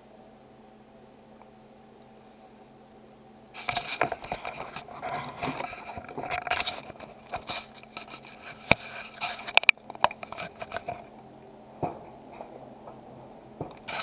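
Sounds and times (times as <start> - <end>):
camera handling scraping and rustling: 3.6 - 11.1, 13.7 - 14.0
sharp clicks and knocks: 13.6 - 14.0.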